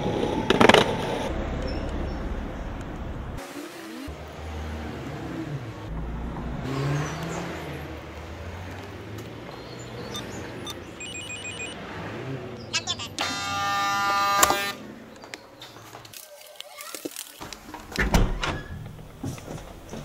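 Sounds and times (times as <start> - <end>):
car going by: 0.0 - 16.0
traffic noise: 0.0 - 20.0
intercom keypad beeps: 10.1 - 11.8.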